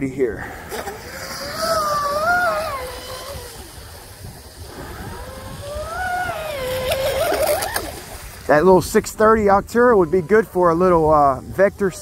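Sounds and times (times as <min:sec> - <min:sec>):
model boat motor whining: 0:00.0 - 0:08.2.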